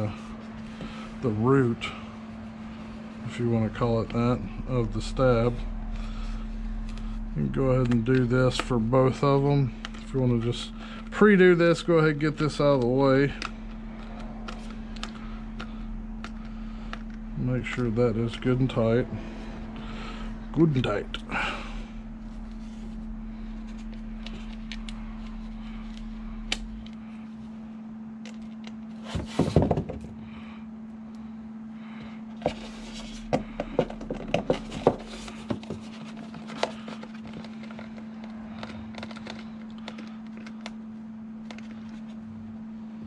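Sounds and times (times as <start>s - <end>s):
steady low hum: 0.0s - 43.0s
screwdriver and plastic parts clicking: 33.8s - 40.8s.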